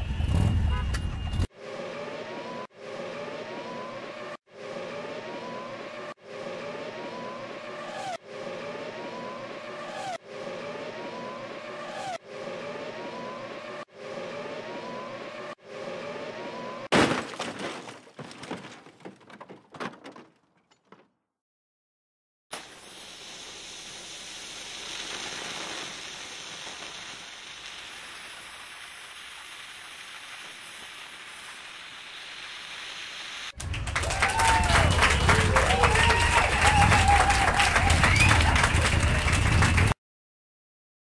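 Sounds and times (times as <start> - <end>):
loud crash: 16.9 - 19.6
parts clattering: 16.9 - 21.1.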